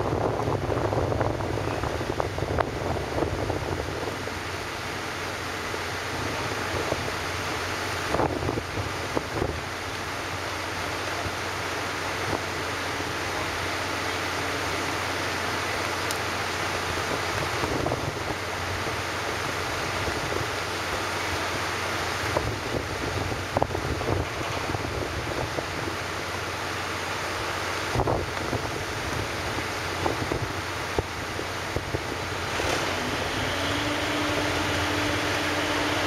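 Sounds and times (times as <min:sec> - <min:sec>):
wind buffeting microphone: 0:00.0 - 0:05.0, 0:05.8 - 0:09.9, 0:16.8 - 0:21.1, 0:22.2 - 0:26.4, 0:27.8 - 0:36.0
ferry engine running: 0:00.0 - 0:36.0
water: 0:00.0 - 0:36.0.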